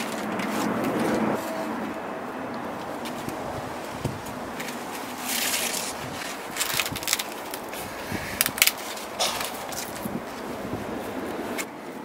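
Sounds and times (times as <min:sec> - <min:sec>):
corn husk rustling and crackling: 0:02.8 - 0:11.7.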